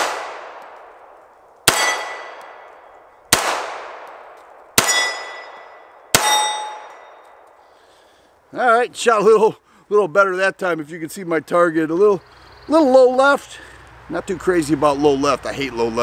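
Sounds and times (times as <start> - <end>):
pistol shots with echo: 0.0 - 0.9, 1.6 - 7.2.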